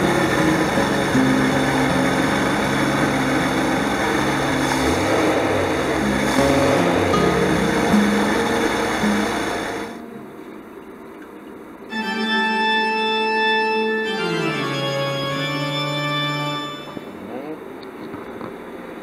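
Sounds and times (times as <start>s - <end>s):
van engine running: 0.0s - 12.7s
organ music with held notes: 0.0s - 17.3s.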